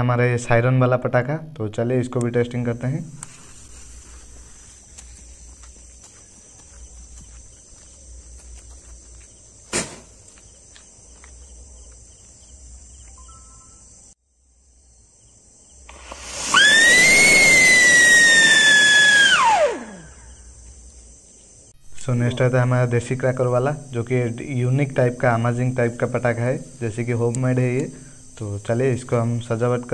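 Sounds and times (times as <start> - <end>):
firecracker hissing sparks: 9.7 - 10.2, 15.8 - 20.1
sharp pop: 9.7 - 10.2
fuse sputtering: 15.8 - 20.2
firecracker shrill whistle: 16.1 - 20.1.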